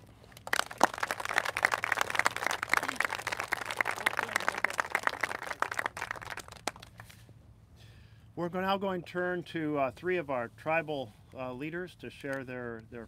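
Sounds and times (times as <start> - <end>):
audience applauding: 0.3 - 7.0.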